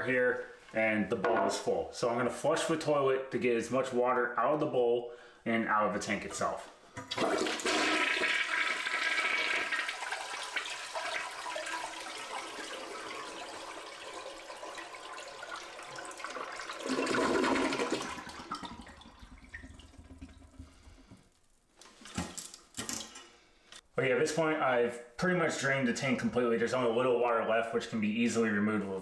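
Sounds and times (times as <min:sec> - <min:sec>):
toilet flushing: 0:07.0 - 0:21.1.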